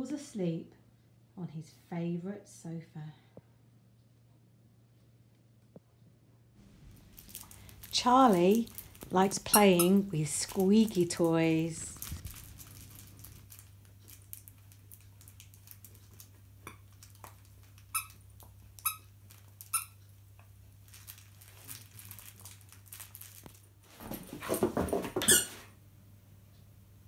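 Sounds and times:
squeaky toy squeaking: 17.9s - 18.2s
dog scuffling: 23.8s - 25.6s.

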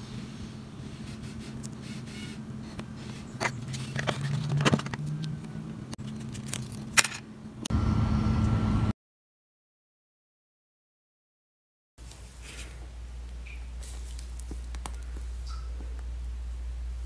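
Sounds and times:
low hum: 0.0s - 8.9s.

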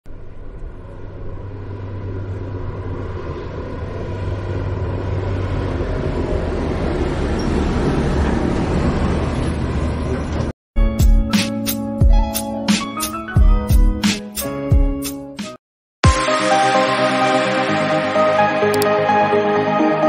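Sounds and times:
vehicle engine rumble: 0.0s - 10.6s.

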